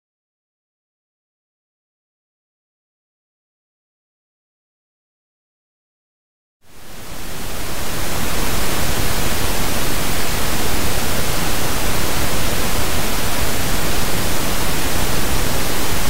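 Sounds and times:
pink noise hiss: 0:06.7 - 0:16.0.

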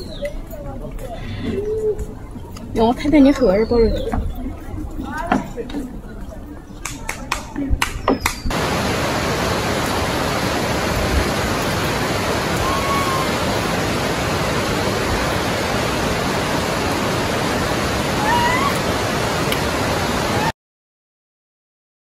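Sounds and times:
steady rushing noise: 0:04.1 - 0:20.5.

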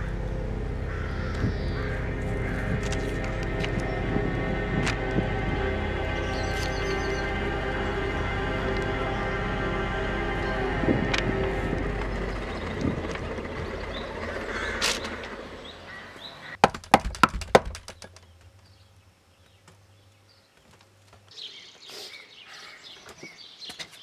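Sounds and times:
music sting: 0:00.0 - 0:14.8
birds chirping: 0:00.0 - 0:24.0
knocking on wooden door: 0:16.6 - 0:18.0.

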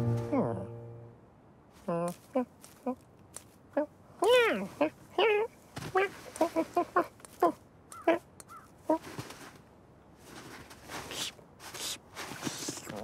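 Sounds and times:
soft whooshing rustles: 0:09.0 - 0:13.0.

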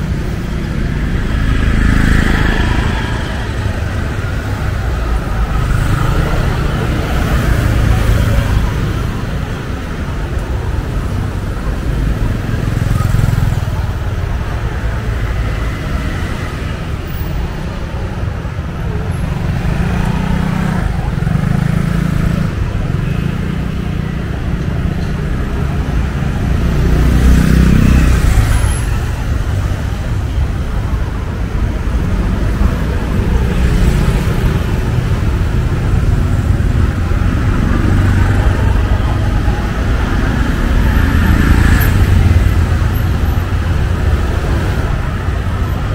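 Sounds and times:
people's voices: 0:00.0 - 0:45.9
traffic din: 0:00.0 - 0:45.9.

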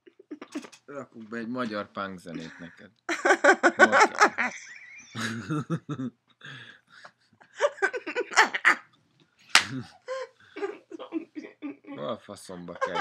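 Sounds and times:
wordless vocal noises: 0:02.4 - 0:02.9, 0:09.5 - 0:13.0
person laughing: 0:02.4 - 0:06.1, 0:07.6 - 0:08.8, 0:12.7 - 0:13.0.

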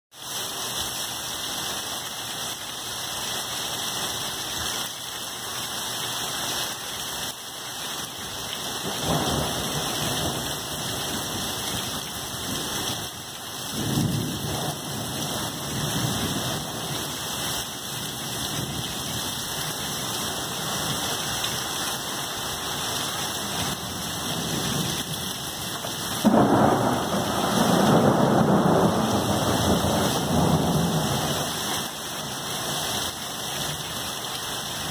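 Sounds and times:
hard rain: 0:00.1 - 0:34.9
thunder rumbling: 0:08.8 - 0:13.1, 0:13.7 - 0:17.2, 0:22.5 - 0:32.4
loud thunderclap: 0:08.9 - 0:11.4, 0:13.8 - 0:16.9, 0:26.2 - 0:31.5.

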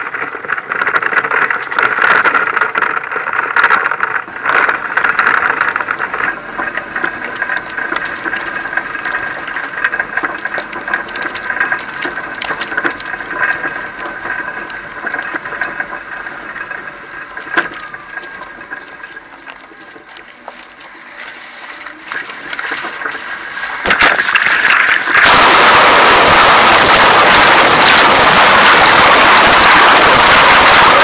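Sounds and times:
rattling and clatter of knocks: 0:00.0 - 0:21.0
vehicle engine running: 0:00.0 - 0:31.0.

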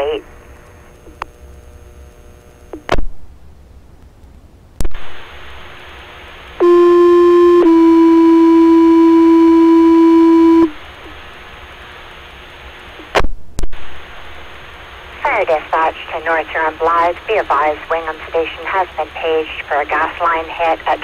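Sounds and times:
radio hiss: 0:00.0 - 0:01.6, 0:04.8 - 0:06.7, 0:10.8 - 0:21.0
two-tone radio page tones: 0:06.6 - 0:10.7.

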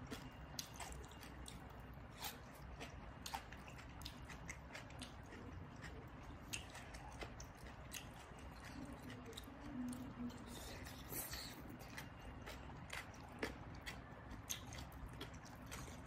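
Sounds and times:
person chewing salad: 0:00.0 - 0:16.0.

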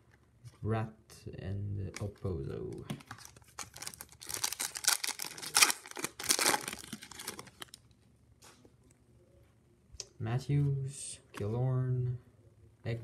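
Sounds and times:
plastic wrapper tearing and crinkling: 0:03.0 - 0:07.9.

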